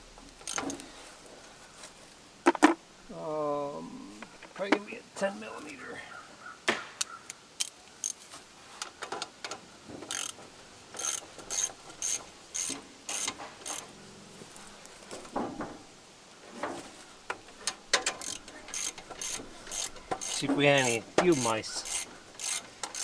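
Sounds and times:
hand tool clicking on fastener: 9.4 - 13.9, 17.3 - 23.0.

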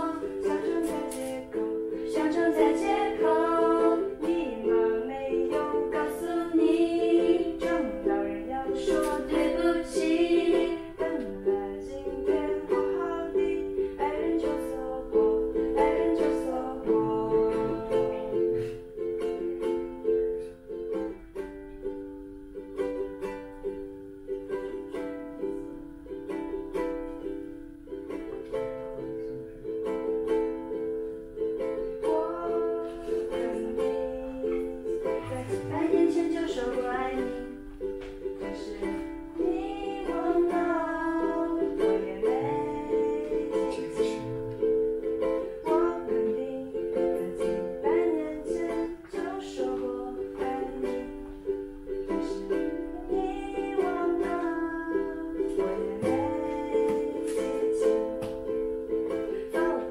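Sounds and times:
woman singing: 0.0 - 19.4, 31.8 - 59.9
acoustic guitar: 0.0 - 59.9
ukulele: 0.0 - 59.9.

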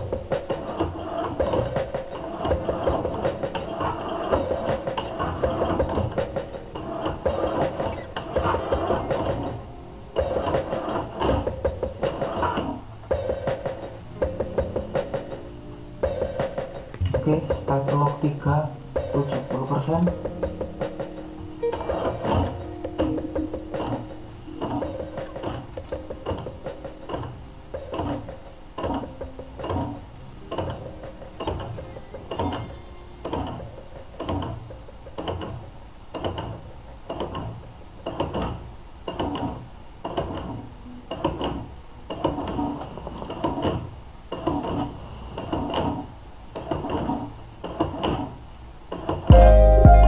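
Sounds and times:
motor whirring and knocking: 0.0 - 15.4.

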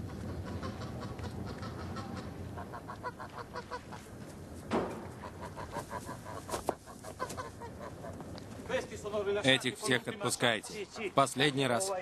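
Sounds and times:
geese honking: 0.1 - 4.0.

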